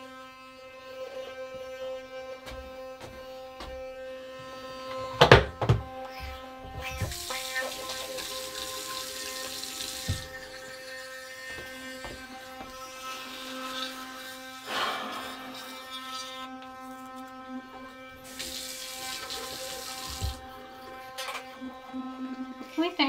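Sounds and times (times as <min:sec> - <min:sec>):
electric toothbrushes humming: 0:00.0 - 0:23.0
running water hiss: 0:06.8 - 0:16.3, 0:18.2 - 0:21.2.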